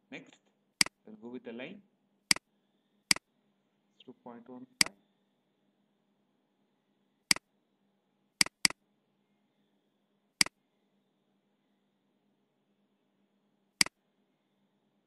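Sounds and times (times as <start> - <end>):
computer mouse button clicks: 8.4 - 8.8.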